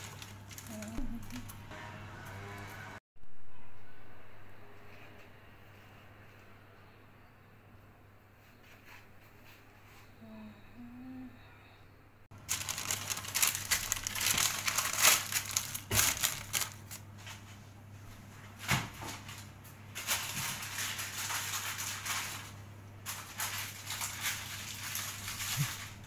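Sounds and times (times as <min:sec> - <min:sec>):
packaging crinkling: 0:00.0 - 0:01.6, 0:12.3 - 0:17.2, 0:19.3 - 0:26.0.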